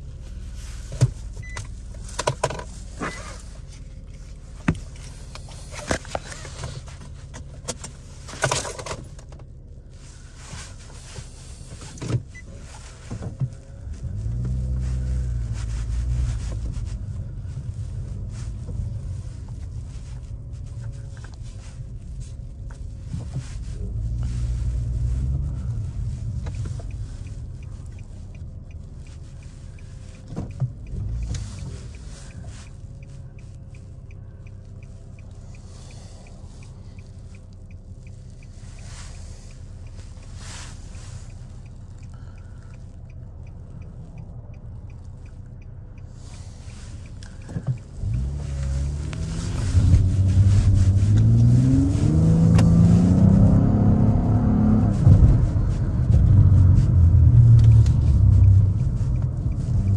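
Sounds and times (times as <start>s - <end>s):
car engine idling: 0.0s - 59.9s
faint light ticking: 16.6s - 51.3s, 54.9s - 59.9s.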